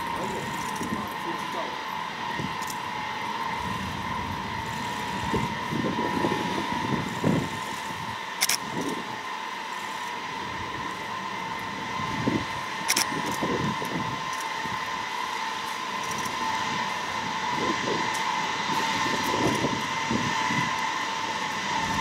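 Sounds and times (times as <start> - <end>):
jet engines whining: 0.0 - 22.0
sharp click: 8.4 - 8.9.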